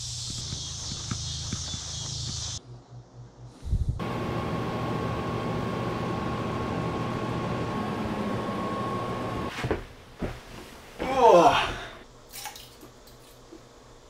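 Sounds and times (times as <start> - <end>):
air conditioner whirring: 4.0 - 14.0.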